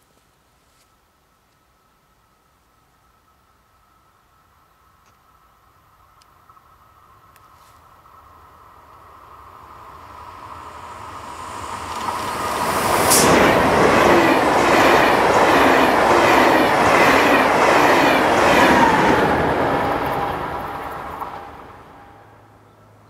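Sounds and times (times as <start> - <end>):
rail whine: 1.3 - 23.0
train passing at speed: 7.9 - 23.0.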